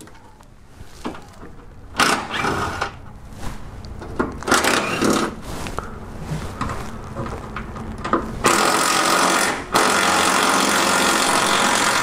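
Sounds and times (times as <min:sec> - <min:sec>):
cordless impact wrench: 0:02.0 - 0:03.0, 0:08.5 - 0:12.0.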